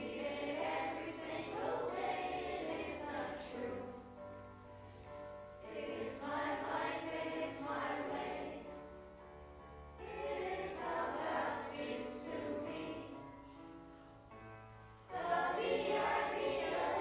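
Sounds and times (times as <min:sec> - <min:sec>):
children's choir singing: 0:00.0 - 0:04.4, 0:05.6 - 0:09.0, 0:10.0 - 0:13.5, 0:15.1 - 0:17.0.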